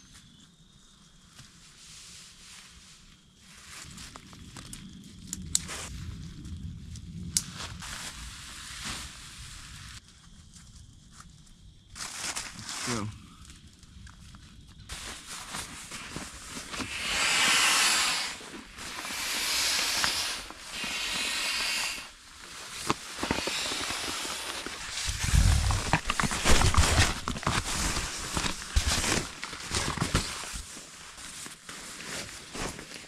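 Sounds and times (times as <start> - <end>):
rustling: 14.9 - 33.0
hissing air rushes: 16.7 - 29.4.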